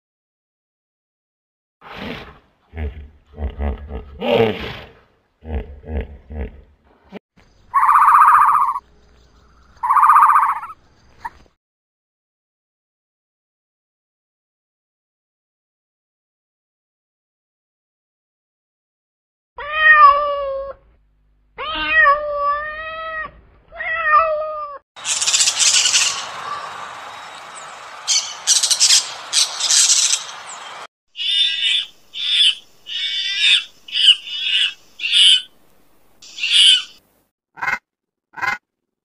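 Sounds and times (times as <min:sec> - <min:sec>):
short high bird calls: 0:07.7 - 0:08.8, 0:09.4 - 0:11.4, 0:25.0 - 0:35.5, 0:36.2 - 0:37.0
parakeets screeching: 0:07.8 - 0:08.8, 0:09.8 - 0:10.8, 0:25.0 - 0:35.5, 0:36.2 - 0:37.0
cat meowing: 0:19.6 - 0:20.8, 0:21.6 - 0:24.8.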